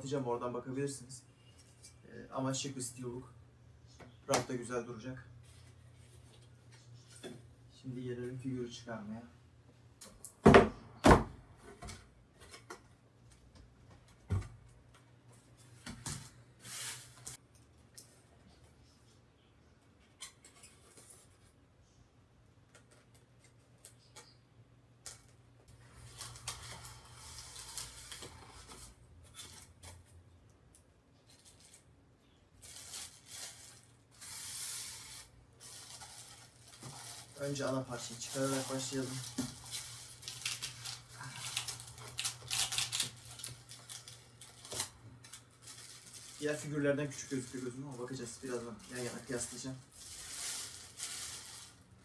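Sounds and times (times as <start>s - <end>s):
plastic bag crinkling: 32.6s - 52.0s.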